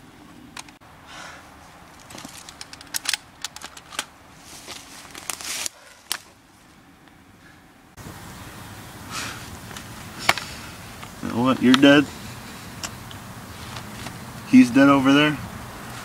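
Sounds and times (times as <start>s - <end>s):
rustling swishes of gear: 1.9s - 6.7s
sharp clicks of rifle handling: 2.0s - 4.1s.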